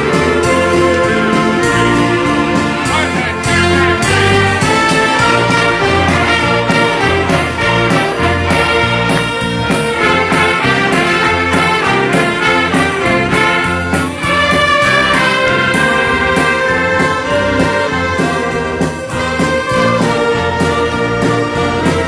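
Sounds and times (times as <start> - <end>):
accordion: 0.0 - 22.0
drum kit steady beat: 0.0 - 22.0
trumpets and trombones: 0.0 - 22.0
tuba: 0.0 - 22.0
violins: 0.0 - 22.0.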